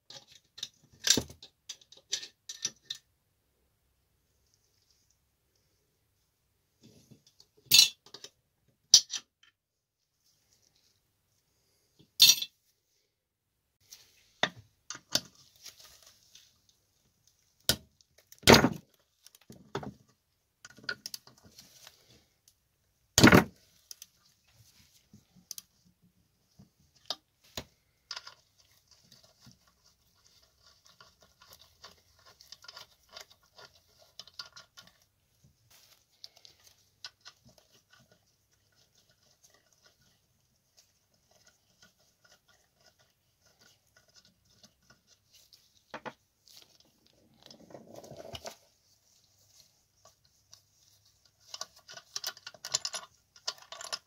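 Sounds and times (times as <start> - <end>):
metal tools clinking and knocking: 7.7 - 8.3, 12.2 - 12.6
scraping and rustling: 15.3 - 16.9, 27.4 - 54.0.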